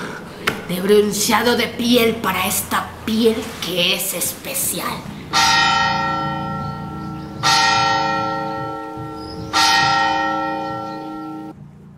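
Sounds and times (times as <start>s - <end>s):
steady low hum: 0.0s - 11.9s
large bell tolling: 4.3s - 11.6s.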